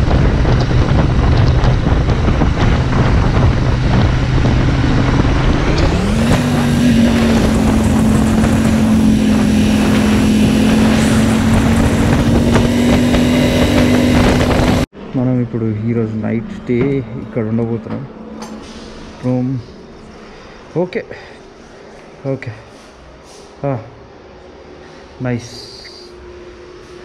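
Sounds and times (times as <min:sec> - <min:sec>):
motorcycle engine running: 0:00.0 - 0:14.9
heavy wind noise: 0:00.0 - 0:20.7.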